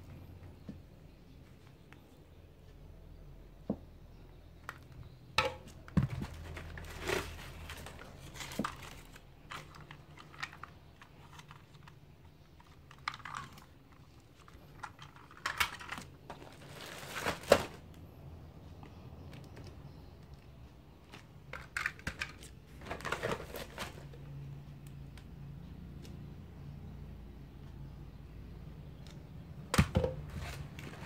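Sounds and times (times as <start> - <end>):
plastic toys clicking and clattering: 4.6 - 17.8, 19.3 - 24.1
plastic bags rustling: 5.9 - 11.9, 12.6 - 17.9, 21.1 - 24.3, 30.0 - 31.0.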